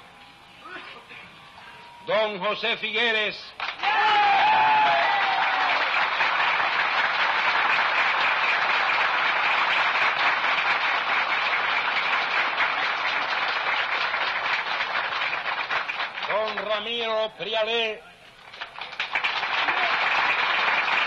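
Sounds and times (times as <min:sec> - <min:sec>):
audience applauding: 0:03.6 - 0:16.9, 0:18.4 - 0:21.0.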